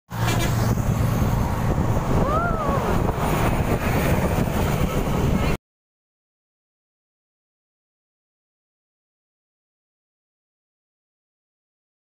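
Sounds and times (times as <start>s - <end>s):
road and engine noise: 0.1s - 5.6s
rising and falling tone: 1.2s - 4.1s.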